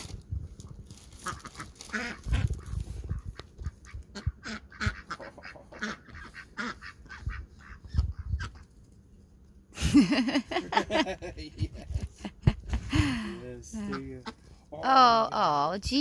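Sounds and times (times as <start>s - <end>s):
ducks quacking: 1.2s - 8.7s, 13.8s - 14.6s.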